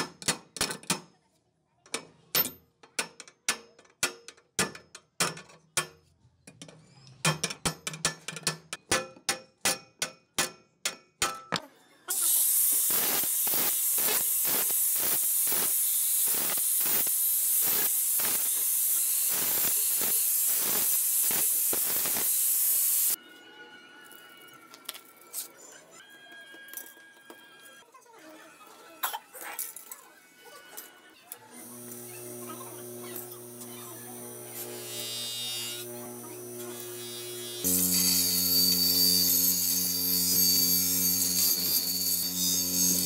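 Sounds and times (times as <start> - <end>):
hammer striking steel tubes: 7.2 - 11.6
angle grinder cutting metal: 12.1 - 23.2, 31.4 - 43.0.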